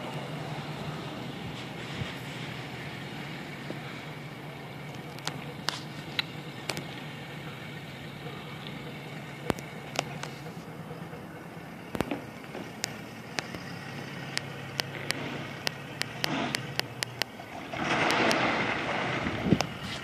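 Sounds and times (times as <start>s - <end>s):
boat engine running: 0.0s - 20.0s
ice cracking against hull: 14.8s - 20.0s.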